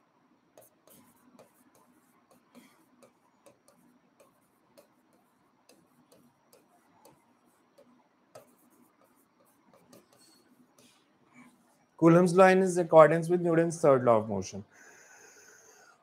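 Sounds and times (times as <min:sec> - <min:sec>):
stylus tapping on a screen: 0:00.6 - 0:11.0.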